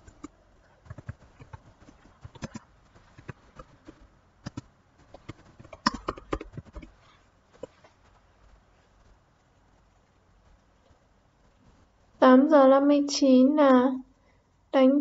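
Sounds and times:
light taps and clicks: 0:00.0 - 0:11.8.

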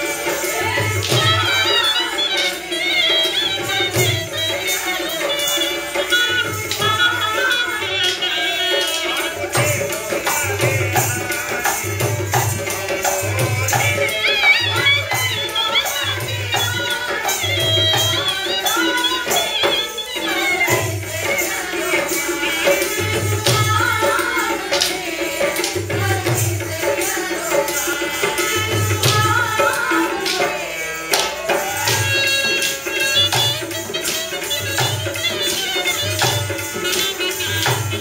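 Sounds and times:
hand drum beating: 0:23.0 - 0:38.0.

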